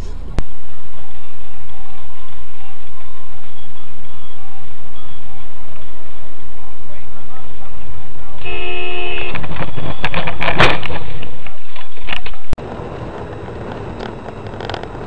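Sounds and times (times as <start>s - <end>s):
in-car road noise: 0.0s - 15.0s
car horn: 8.4s - 10.2s.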